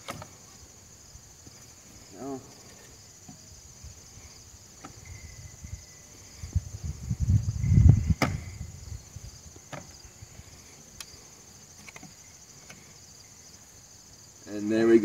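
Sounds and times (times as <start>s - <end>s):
crickets chirping: 0.0s - 15.0s
dull thumps: 8.0s - 8.6s, 9.6s - 10.0s.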